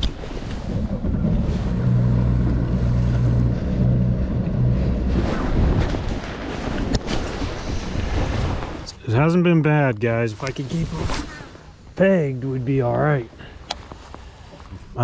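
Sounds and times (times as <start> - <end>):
water rushing past hull: 0.0 - 12.5
outboard motor running: 0.6 - 6.2.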